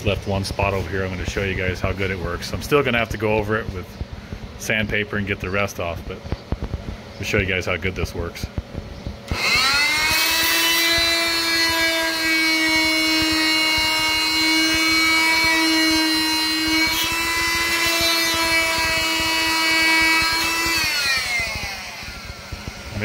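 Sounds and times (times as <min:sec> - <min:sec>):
oscillating multi-tool whine: 0:09.2 - 0:23.0.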